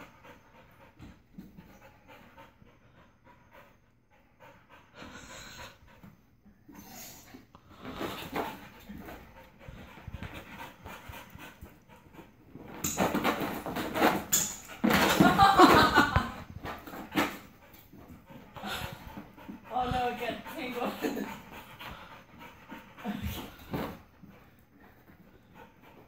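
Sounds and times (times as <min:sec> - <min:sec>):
dogs panting and whimpering: 0:00.0 - 0:26.0
paws scrambling on carpet: 0:07.7 - 0:26.0.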